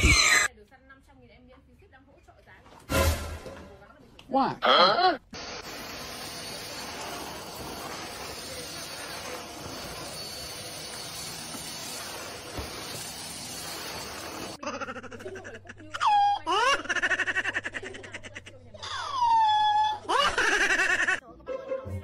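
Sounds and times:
vacuum cleaner running: 5.4s - 14.6s
wavering vocal cries: 18.8s - 20.4s.

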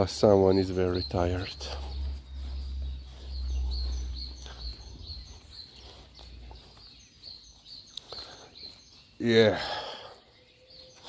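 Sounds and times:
songbird chirping: 0.0s - 11.0s
low rumble: 1.0s - 7.3s.

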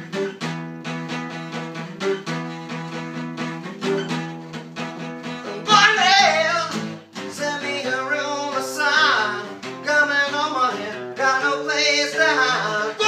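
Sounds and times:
acoustic guitar: 0.0s - 13.0s
man singing: 5.4s - 13.0s.

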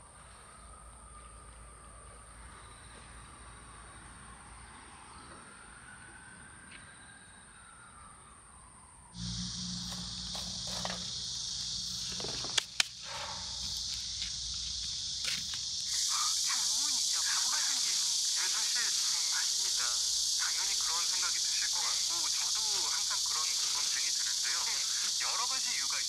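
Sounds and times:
high-pitched insect chorus: 0.0s - 26.0s
low hum: 9.2s - 21.3s
sharp clicks: 12.0s - 13.0s.

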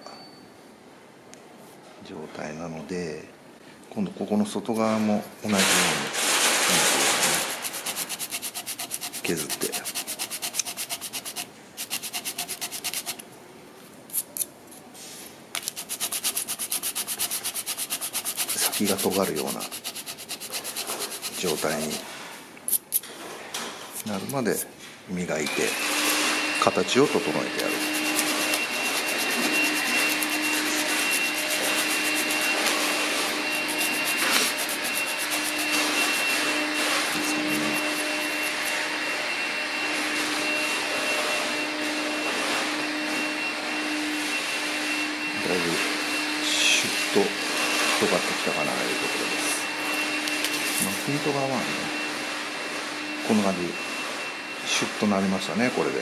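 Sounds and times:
wood rasping on sandpaper: 6.8s - 13.2s, 15.6s - 22.1s, 27.2s - 38.8s.

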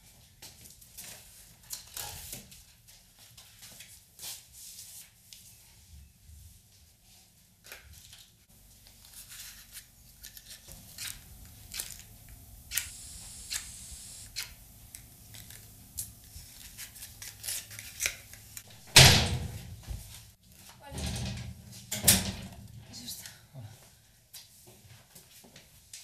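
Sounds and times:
brief high hiss: 12.7s - 14.6s.

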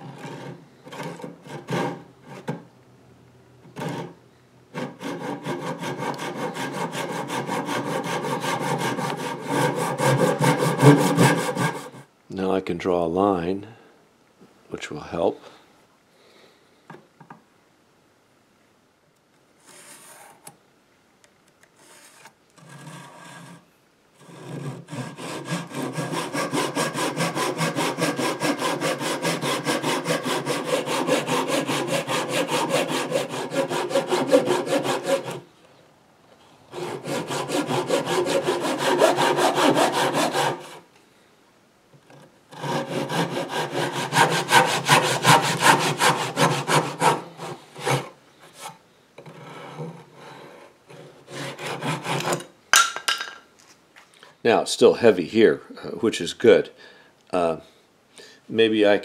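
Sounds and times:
backsaw cutting wood: 0.0s - 2.6s, 3.8s - 12.0s, 24.2s - 35.5s, 36.7s - 40.8s, 42.5s - 48.7s, 50.9s - 52.5s.

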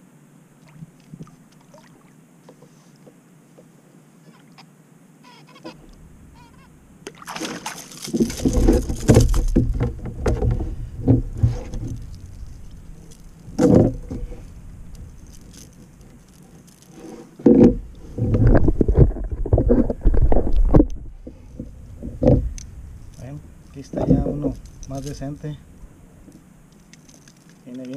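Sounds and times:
water splashing: 0.6s - 2.2s, 6.3s - 16.9s
handling noise near microphone: 7.3s - 27.9s.

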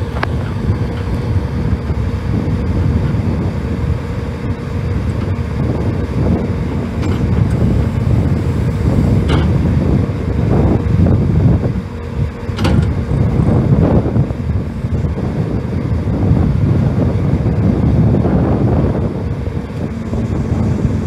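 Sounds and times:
diesel engine running: 0.0s - 21.0s
excavator hydraulics: 0.0s - 21.0s
wind buffeting microphone: 0.0s - 21.0s.

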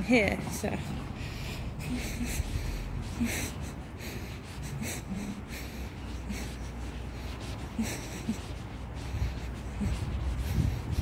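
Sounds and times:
person breathing while walking: 0.4s - 11.0s
wind rumble on microphone: 7.6s - 11.0s.

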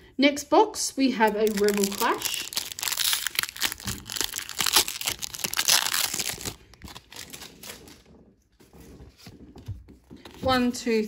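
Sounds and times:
foil wrapper crinkling: 1.2s - 8.0s.

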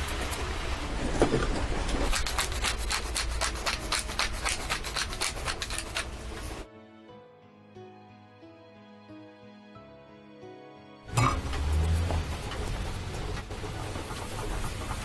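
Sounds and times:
pepper mill grinding: 2.0s - 6.2s.

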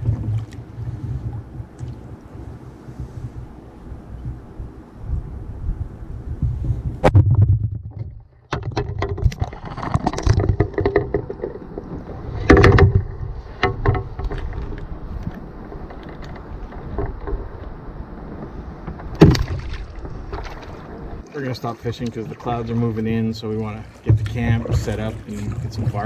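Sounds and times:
thumps in canoe: 7.0s - 14.9s, 18.4s - 20.9s, 23.9s - 26.0s.

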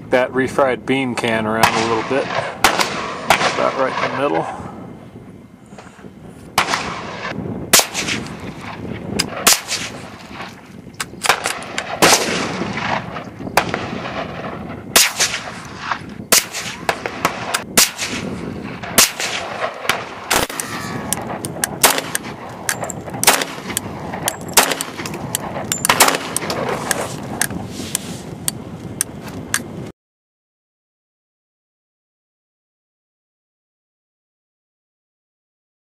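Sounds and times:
rifle shots: 1.5s - 4.6s, 6.6s - 10.6s, 11.2s - 27.2s.

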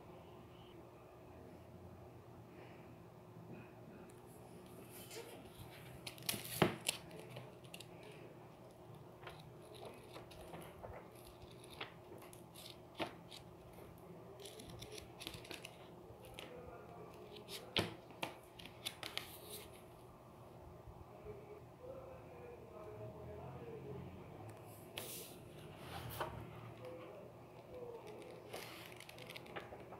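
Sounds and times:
paper pages rustling: 4.7s - 20.0s, 24.9s - 29.9s.

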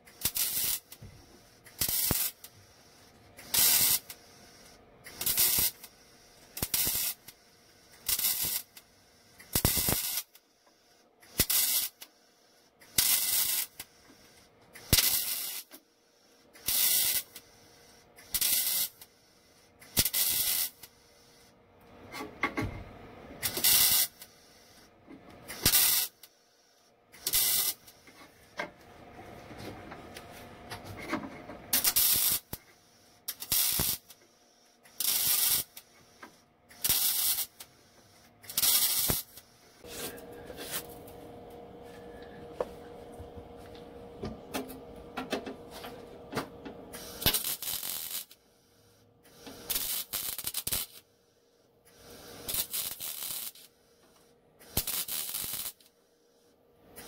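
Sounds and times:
mig welder arc bursts: 0.0s - 10.4s, 11.2s - 12.1s, 12.8s - 14.0s, 14.8s - 15.8s, 16.5s - 21.5s, 23.4s - 24.9s, 25.5s - 28.1s, 31.7s - 39.8s, 46.9s - 51.2s, 51.9s - 53.9s, 54.6s - 56.1s.

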